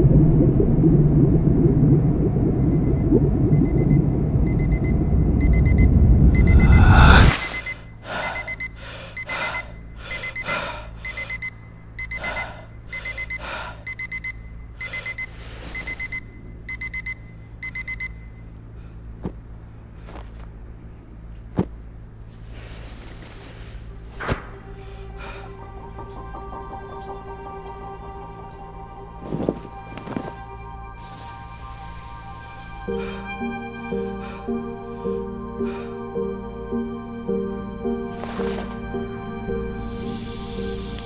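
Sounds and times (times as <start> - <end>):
deep rumble: 0.0 - 8.7, 16.2 - 41.0
digital alarm clock beeping: 2.6 - 18.4
rustling: 19.2 - 20.6, 21.5 - 24.7, 29.2 - 32.2.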